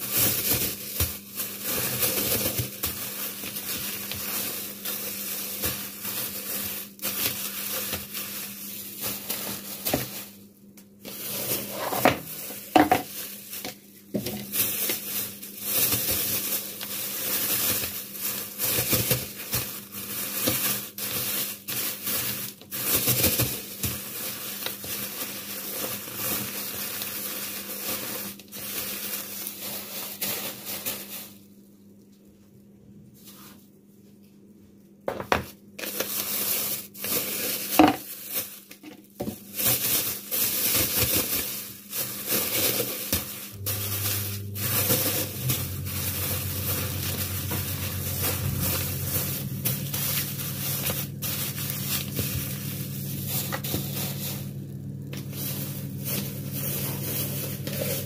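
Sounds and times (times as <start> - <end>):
scraping and rustling: 0.0 - 10.4, 11.0 - 31.4, 35.8 - 58.0
steady low hum: 43.3 - 58.0.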